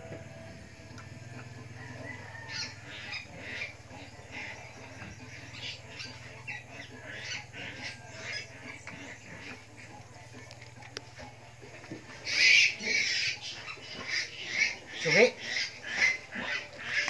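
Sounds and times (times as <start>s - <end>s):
steady low hum: 0.0s - 17.0s
high-pitched animal squawks: 5.5s - 8.8s, 12.2s - 17.0s.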